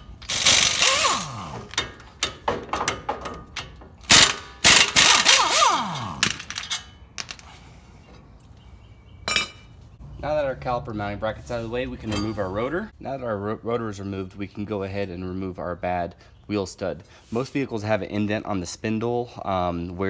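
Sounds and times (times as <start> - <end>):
impact wrench hammering: 0.0 - 6.8
metal parts clattering: 0.0 - 7.6.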